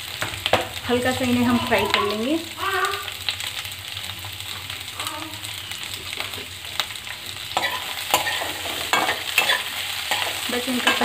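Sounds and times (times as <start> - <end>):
vegetables sizzling in hot oil: 0.0 - 11.0
spatula scraping a metal pan: 7.6 - 11.0.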